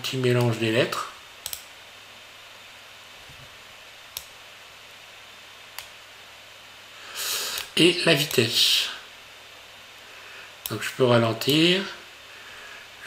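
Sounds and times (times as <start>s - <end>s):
background hiss: 0.0s - 13.0s
computer mouse clicks: 1.4s - 1.7s, 4.1s - 4.4s, 5.8s - 6.0s, 7.6s - 8.4s.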